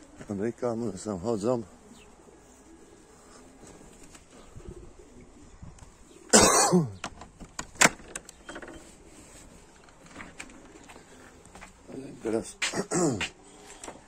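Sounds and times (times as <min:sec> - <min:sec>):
pigeons cooing: 0:00.0 - 0:14.0
man coughing: 0:06.3 - 0:07.0, 0:12.7 - 0:13.3.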